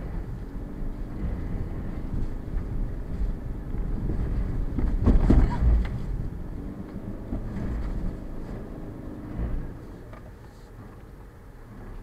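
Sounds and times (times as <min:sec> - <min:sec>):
car engine running: 0:00.0 - 0:12.0
tyre rumble on dirt track: 0:01.2 - 0:06.3.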